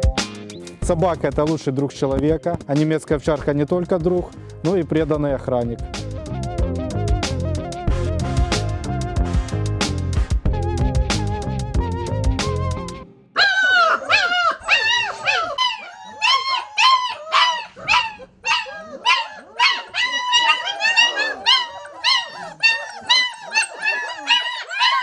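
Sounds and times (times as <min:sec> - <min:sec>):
music: 0:00.0 - 0:13.4
puppies yipping and whining: 0:13.4 - 0:25.0.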